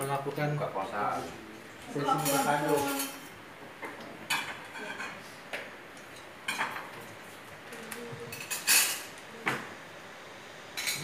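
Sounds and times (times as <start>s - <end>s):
dishes clinking: 2.0s - 5.2s, 6.0s - 7.0s, 8.3s - 9.1s, 10.8s - 11.0s.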